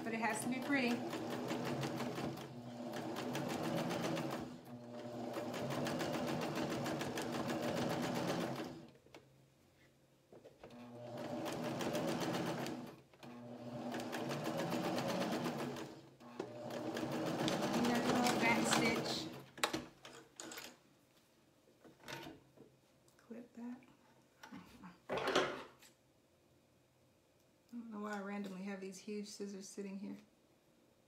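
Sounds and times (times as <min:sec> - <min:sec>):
sewing machine running: 0:00.0 - 0:08.9, 0:10.7 - 0:19.4.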